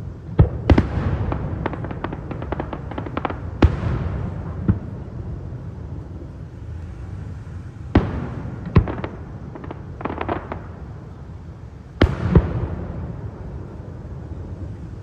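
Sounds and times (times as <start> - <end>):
firework booms: 0.0 - 6.2, 7.8 - 10.9, 12.0 - 14.8
steady low rumble: 0.0 - 15.0
crackling firework pops: 0.3 - 5.2, 7.9 - 10.9, 11.9 - 13.2.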